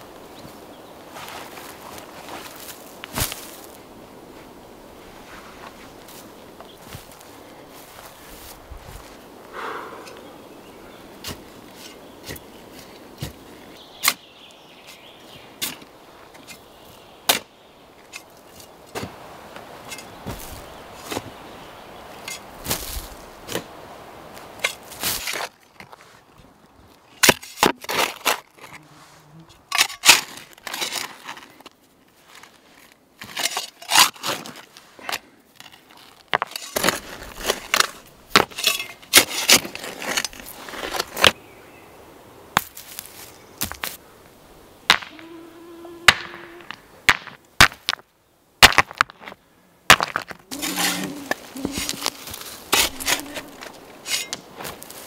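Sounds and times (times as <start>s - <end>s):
sand thrown onto heap: 1.1s - 3.8s, 20.2s - 21.3s, 22.6s - 25.5s
shovel digging stony soil: 11.2s - 14.2s, 22.2s - 23.7s, 24.6s - 26.0s, 27.2s - 29.0s, 29.6s - 31.5s, 33.2s - 41.4s, 49.9s - 55.0s.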